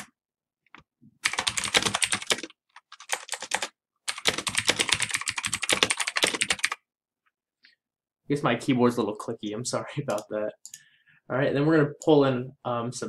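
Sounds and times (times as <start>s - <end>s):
typing on clicky keyboard: 1.2s - 6.8s.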